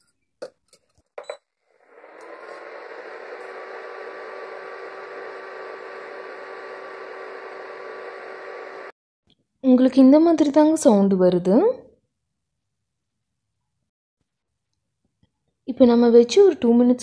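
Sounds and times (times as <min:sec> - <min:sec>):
cooling fan whirring: 0:01.8 - 0:08.9.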